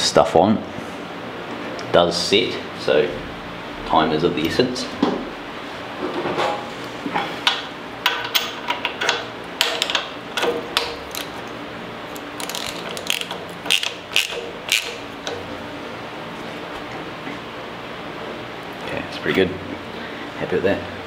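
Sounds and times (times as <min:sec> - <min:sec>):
wrench clicking: 0:12.4 - 0:15.0.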